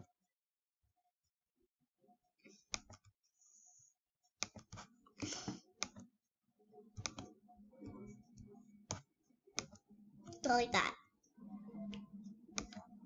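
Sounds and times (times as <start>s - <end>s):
computer mouse clicking: 2.7s - 3.1s, 4.4s - 6.1s, 7.0s - 10.4s, 11.9s - 12.9s.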